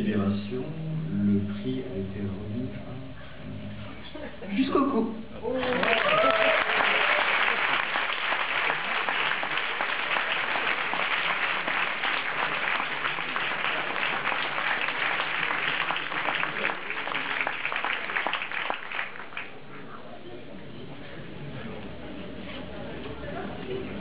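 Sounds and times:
audience applauding: 5.5s - 19.6s.

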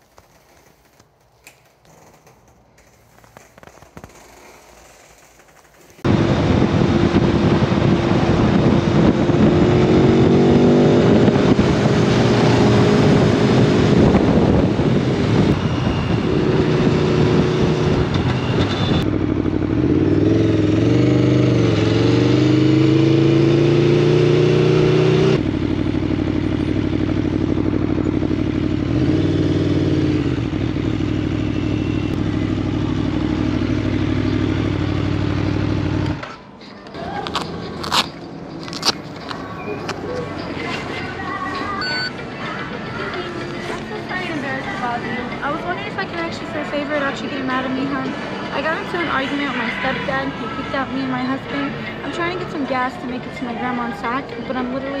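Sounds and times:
motorcycle engine revving: 6.0s - 36.3s.

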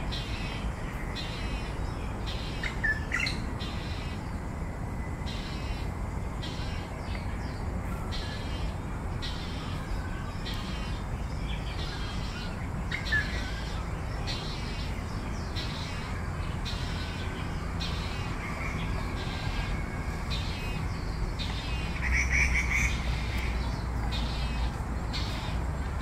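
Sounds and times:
low background rumble: 0.0s - 26.0s
bird harsh rasping begging calls: 5.3s - 7.0s.

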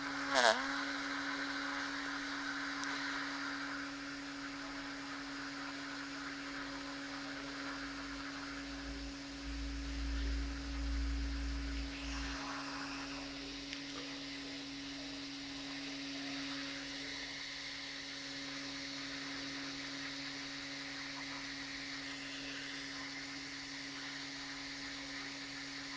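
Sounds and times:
electric motor humming: 0.0s - 25.9s
light hiss: 0.0s - 25.9s
low rumble: 8.8s - 13.6s.

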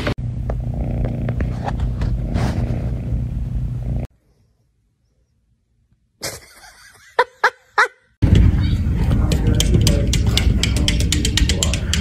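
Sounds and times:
cat purring loudly: 0.6s - 4.1s.

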